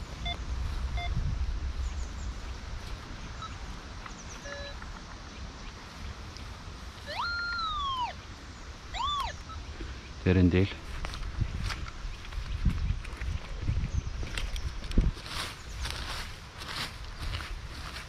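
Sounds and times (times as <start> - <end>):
metal detector beeps: 4.4 - 4.8, 8.9 - 9.6.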